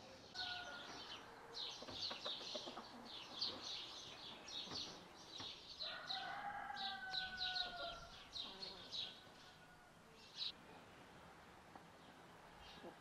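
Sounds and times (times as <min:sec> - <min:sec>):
small birds chirping: 0:00.0 - 0:10.9
rooster crowing: 0:00.4 - 0:01.3, 0:05.8 - 0:08.2.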